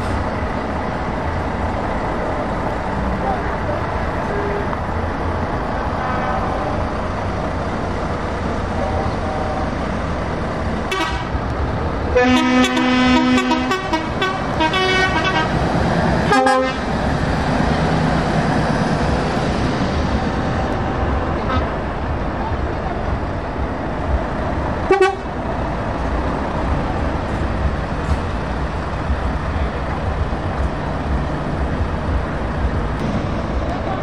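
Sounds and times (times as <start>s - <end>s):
diesel truck engines running: 0.0s - 34.0s
truck air horn blasts: 8.8s - 9.8s, 10.9s - 11.4s, 12.2s - 15.6s, 16.3s - 16.9s, 24.9s - 25.3s.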